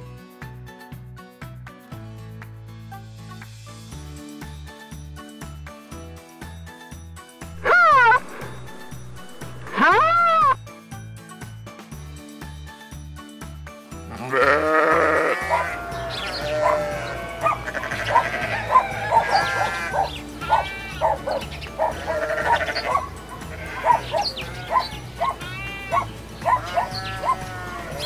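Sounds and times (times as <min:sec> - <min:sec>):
background music with steady beat: 0:00.0 - 0:28.0
flock of animals bleating: 0:07.6 - 0:10.6, 0:14.1 - 0:28.0.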